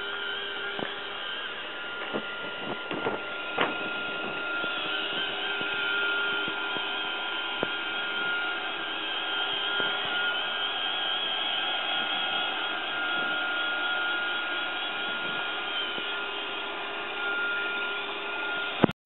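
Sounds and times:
robot vacuum motor whine: 0:00.0 - 0:18.9
sharp clicks and knocks: 0:02.0 - 0:05.8.

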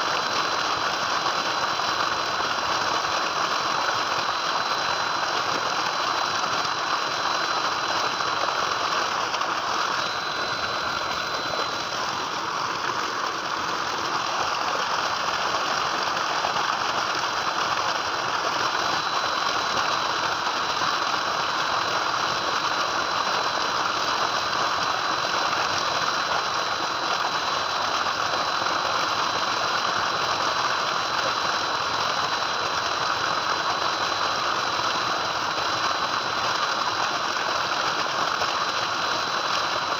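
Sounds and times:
water gushing into a tank: 0:00.0 - 0:39.9
thin high whine: 0:00.1 - 0:26.9.

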